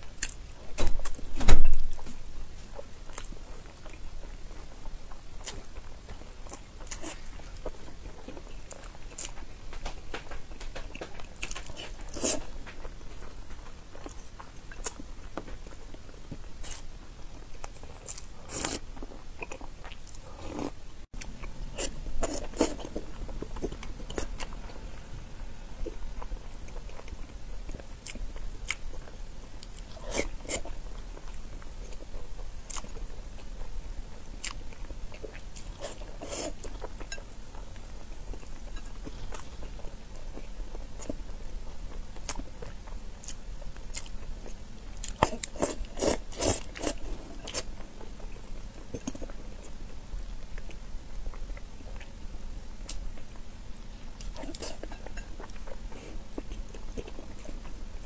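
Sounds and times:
person chewing wetly: 0:17.5 - 0:25.0, 0:25.8 - 0:52.2, 0:52.8 - 0:58.0.

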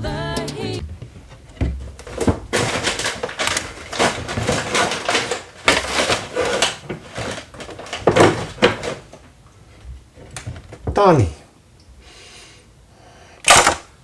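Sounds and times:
bottles and cans clattering: 0:01.5 - 0:09.2.

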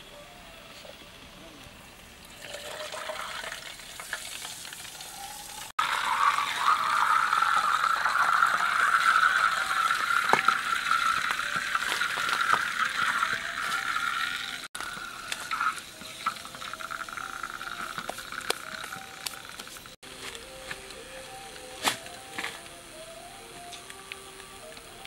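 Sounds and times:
cola fizzing with crackles: 0:02.2 - 0:20.0.

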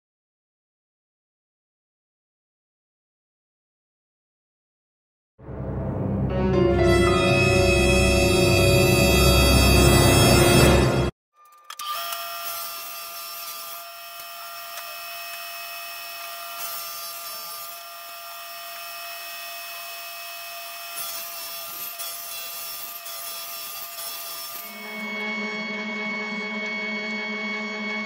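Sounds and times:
table saw cutting plywood: 0:07.1 - 0:11.1, 0:11.8 - 0:28.0.

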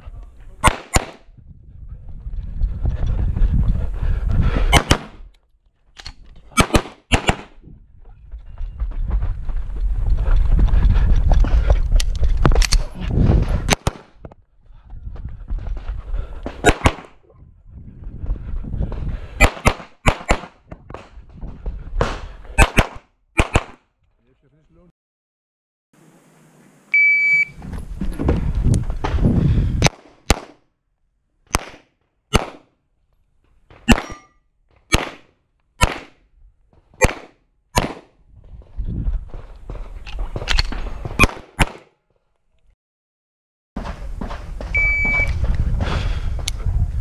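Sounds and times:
pistol shots: 0:00.6 - 0:01.2, 0:04.8 - 0:05.1, 0:06.6 - 0:07.5, 0:19.4 - 0:20.5, 0:22.6 - 0:23.8, 0:29.8 - 0:30.6, 0:31.5 - 0:32.6, 0:33.9 - 0:34.2, 0:34.9 - 0:35.2, 0:35.8 - 0:36.2, 0:37.0 - 0:38.1, 0:41.2 - 0:41.9
shot timer beep: 0:27.0 - 0:27.6, 0:44.8 - 0:45.3.

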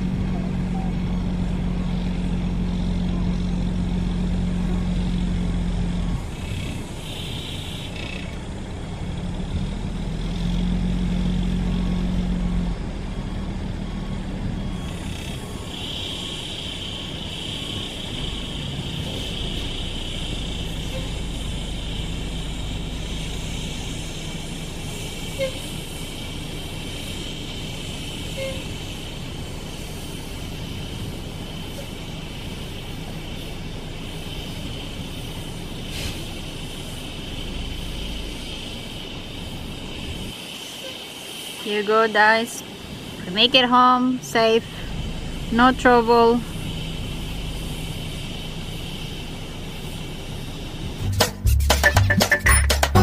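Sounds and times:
bus engine running: 0:00.0 - 0:53.0
high-pitched drone: 0:51.0 - 0:53.0.

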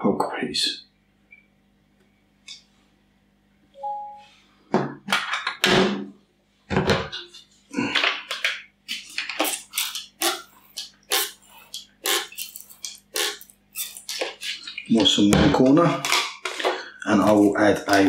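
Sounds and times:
spray bottle squirting water: 0:12.0 - 0:14.4.

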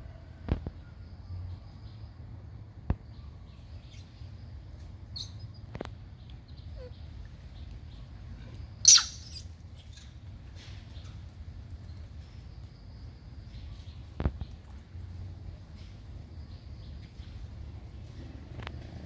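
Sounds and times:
high-pitched animal call: 0:08.8 - 0:09.5.

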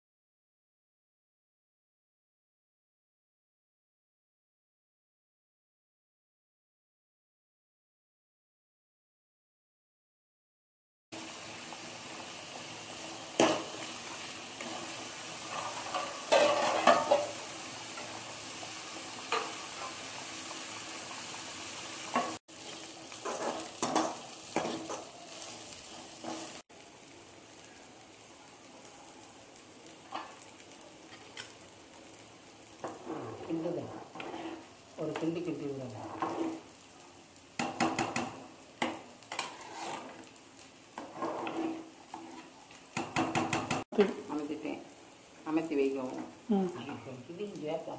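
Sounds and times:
gas stove hissing: 0:11.2 - 0:16.4, 0:17.0 - 0:47.9
ladle scraping metal pot: 0:32.9 - 0:34.7, 0:36.0 - 0:36.6, 0:39.3 - 0:40.2, 0:41.0 - 0:42.5.

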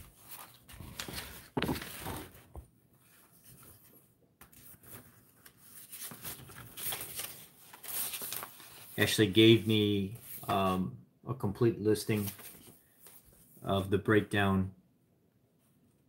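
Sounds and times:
paper rustling: 0:00.0 - 0:10.5, 0:12.1 - 0:13.5.

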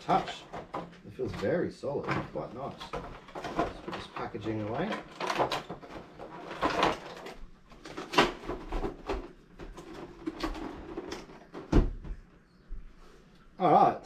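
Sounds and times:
plastic tray crinkling: 0:02.1 - 0:11.7.

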